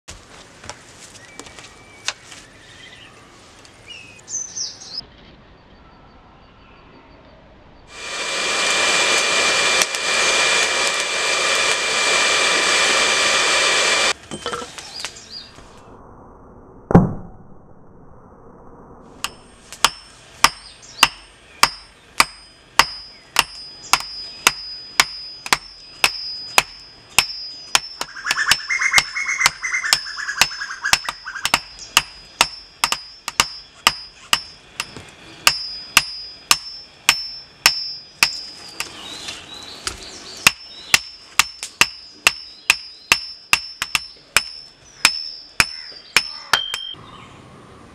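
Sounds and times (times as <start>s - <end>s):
forge air blower rushing: 7.9s - 14.2s
hammer striking anvil ringing: 19.2s - 38.6s, 40.5s - 47.0s.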